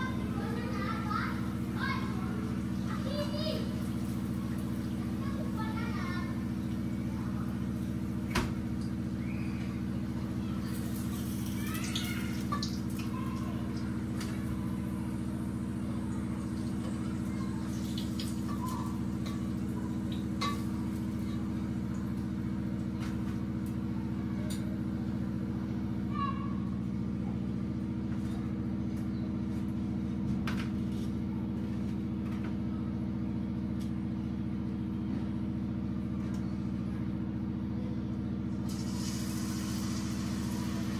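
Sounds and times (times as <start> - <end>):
low mechanical hum: 0.0 - 40.9
food frying in oil: 0.1 - 9.2, 10.3 - 23.9, 38.7 - 40.9.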